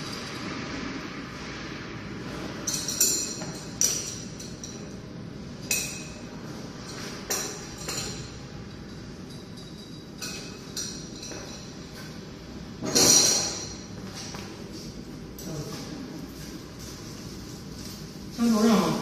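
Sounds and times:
steady background noise: 0.0 - 19.0
metal hose fittings clinking: 2.6 - 11.9.

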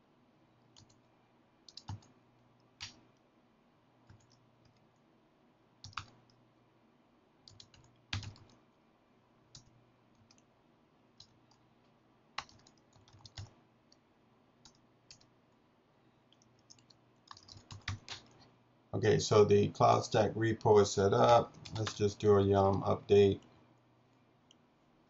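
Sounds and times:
computer keyboard keystrokes: 0.7 - 1.1, 1.7 - 2.2, 2.8 - 3.0, 4.0 - 4.9, 5.8 - 6.4, 7.4 - 8.6, 9.5 - 10.5, 12.4 - 13.6, 14.6 - 15.3, 16.3 - 18.4, 21.3 - 22.1.

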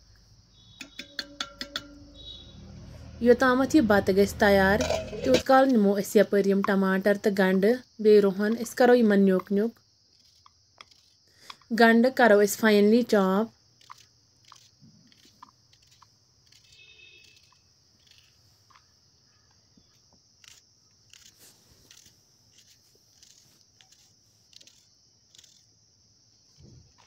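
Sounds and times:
knife slicing onions: 9.4 - 11.7, 13.8 - 18.4, 20.4 - 25.8.

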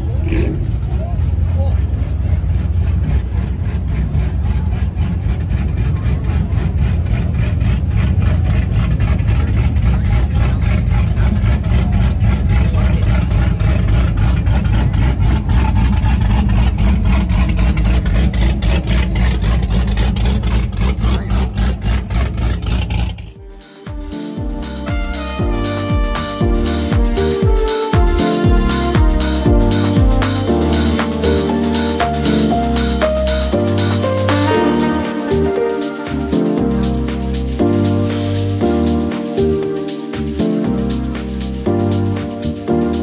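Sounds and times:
car exhaust rumbling: 0.0 - 23.4, 24.0 - 43.0.

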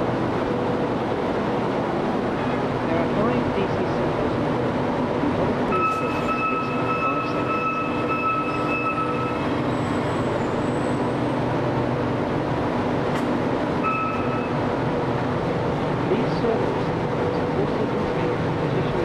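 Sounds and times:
high steady tone: 13.8 - 14.6.

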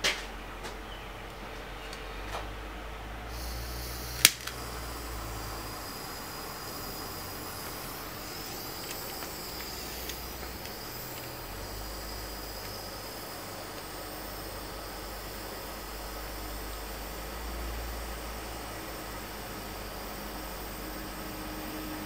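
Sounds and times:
low hum: 0.4 - 22.0
faint hiss: 2.0 - 22.0
short clicks: 4.1 - 4.7.

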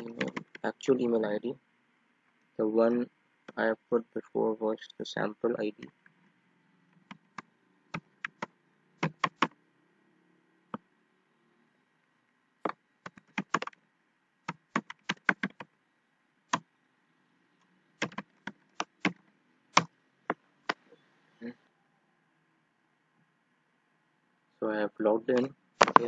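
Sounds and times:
typing on computer keyboard: 0.0 - 0.7, 7.0 - 9.6, 13.0 - 13.8, 14.5 - 15.7, 18.0 - 19.2.

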